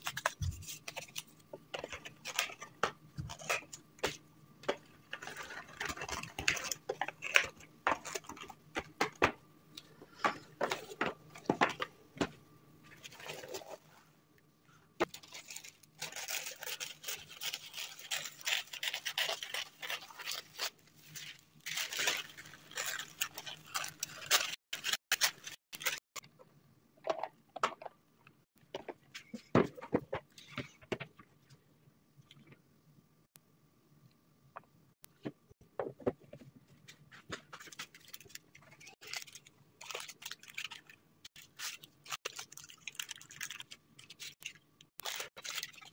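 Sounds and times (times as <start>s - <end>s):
tissue paper crinkling: 15.1s - 26.0s.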